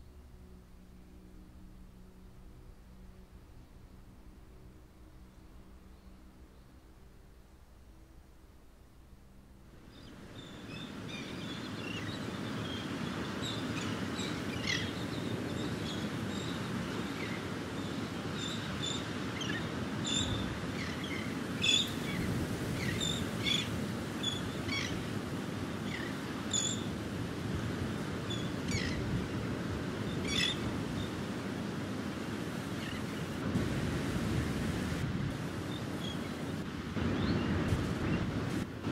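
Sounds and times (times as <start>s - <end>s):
steady low background rush: 0.0s - 11.6s.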